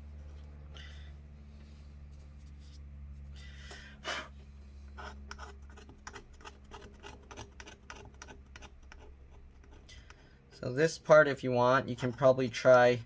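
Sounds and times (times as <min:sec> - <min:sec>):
hand tool scraping adhesive: 0:05.0 - 0:10.7, 0:11.8 - 0:12.9.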